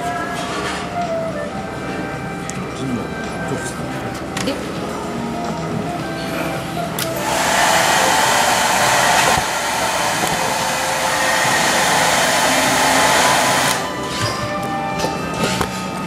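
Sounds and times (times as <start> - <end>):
hair dryer blowing: 7.0 - 14.2.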